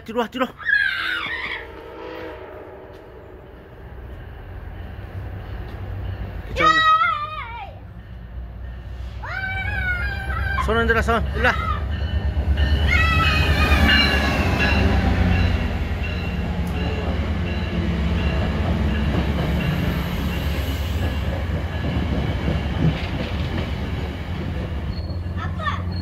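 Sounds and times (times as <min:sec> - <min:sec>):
train cars rolling by: 0:00.7 - 0:26.0
diesel locomotive rumble: 0:01.2 - 0:26.0
high brake squeal: 0:24.8 - 0:26.0.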